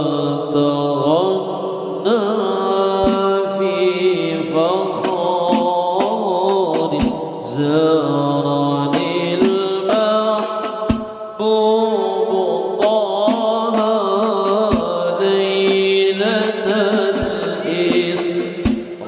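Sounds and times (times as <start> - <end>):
person singing ornamented melody: 0.0 - 19.0
low drum beats: 5.5 - 7.4, 9.0 - 11.3, 15.7 - 19.0.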